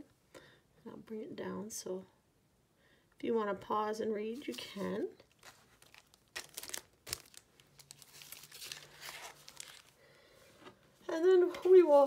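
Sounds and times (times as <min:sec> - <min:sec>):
paper packaging rustling: 0:04.4 - 0:10.0.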